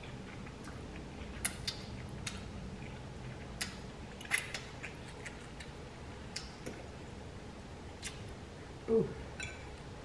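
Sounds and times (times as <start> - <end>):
person chewing noodles: 0.0 - 6.9.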